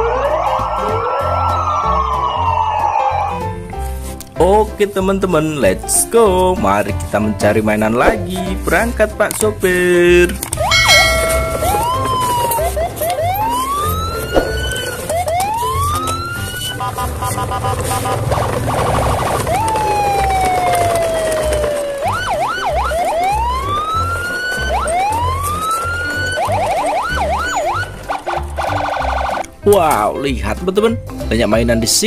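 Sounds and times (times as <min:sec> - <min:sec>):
electronic siren whoops and warbles: 0:00.0 - 0:03.5, 0:10.7 - 0:17.0, 0:19.4 - 0:29.4.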